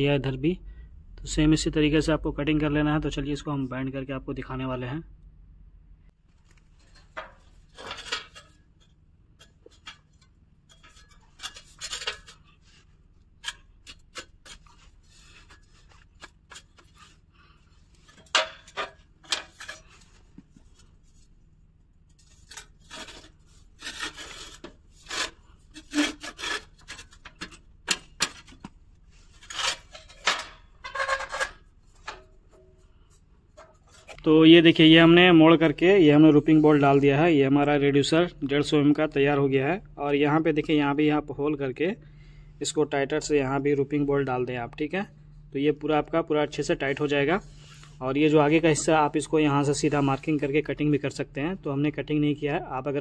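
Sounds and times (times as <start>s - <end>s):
metal scraping and rubbing: 6.7s - 21.4s, 22.1s - 37.3s.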